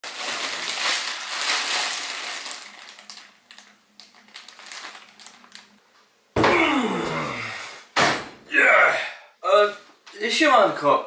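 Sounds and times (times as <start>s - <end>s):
plastic packaging crinkling: 0.0s - 5.9s.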